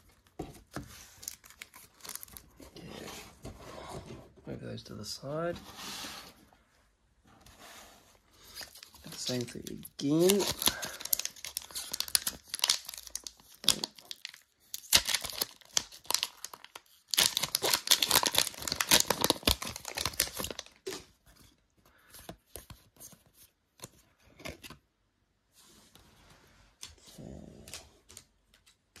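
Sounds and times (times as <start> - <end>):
foil card pack crinkling and tearing: 1.1 - 2.4, 8.5 - 21.0.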